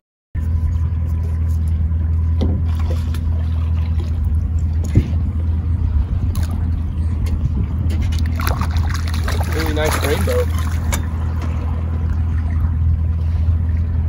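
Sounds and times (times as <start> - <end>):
boat motor humming: 0.4 - 14.0.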